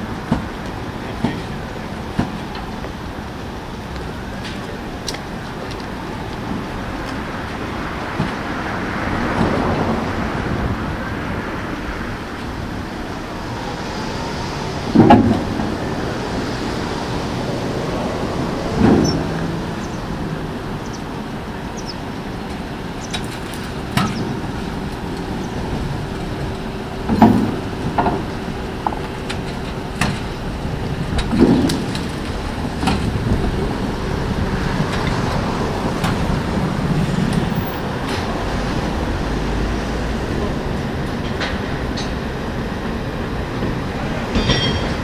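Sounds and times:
tram wheels rolling on rails: 0.0s - 45.0s
heavy clunks: 14.9s - 15.8s, 27.0s - 30.3s, 31.1s - 33.2s, 43.6s - 45.0s.

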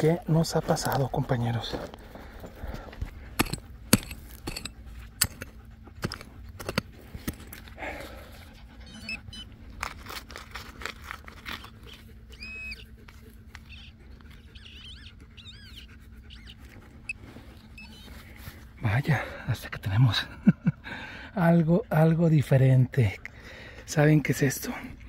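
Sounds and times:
hand tool scraping in soil: 3.4s - 7.7s
metal detector beep: 17.0s - 18.1s
rising-and-falling chirps: 17.8s - 18.1s.

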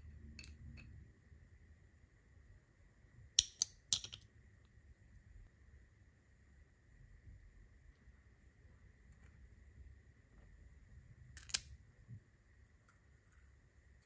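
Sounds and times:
small metal parts clicking: 3.4s - 4.2s, 11.4s - 11.7s.

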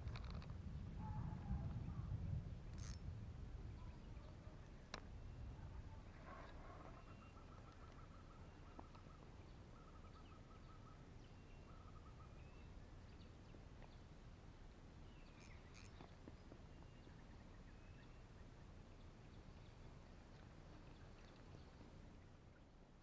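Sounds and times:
sweeping bird call: 5.2s - 13.3s, 15.1s - 18.2s.

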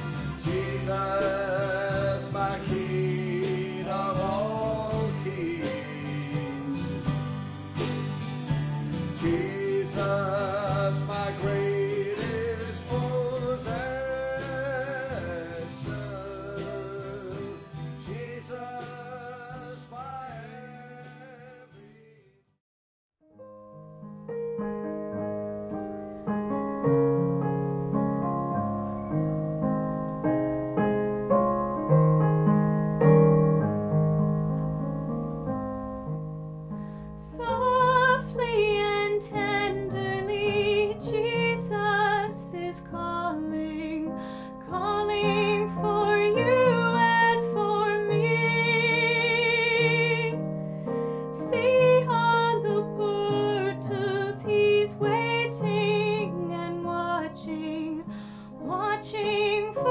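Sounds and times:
slow piano: 0.0s - 22.1s, 23.2s - 59.9s
woman singing with vibrato: 37.2s - 50.4s, 51.4s - 59.9s.

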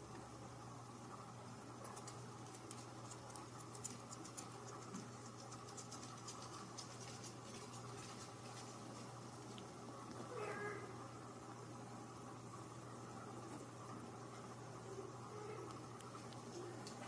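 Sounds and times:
steady low hum: 0.0s - 17.0s
kitten scratching on sofa: 2.0s - 8.9s.

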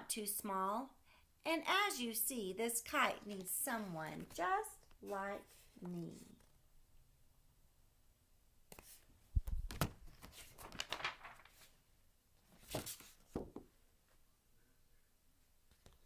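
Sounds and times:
paper rustling: 8.7s - 11.8s, 12.4s - 13.5s.

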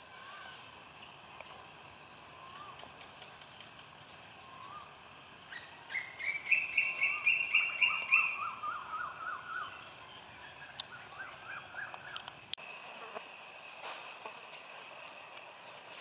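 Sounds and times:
wild birds calling: 0.0s - 12.5s.

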